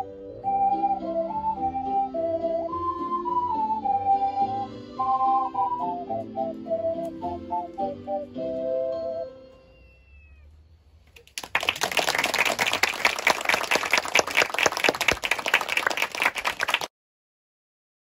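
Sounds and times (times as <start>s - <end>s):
audience clapping: 11.2s - 16.9s.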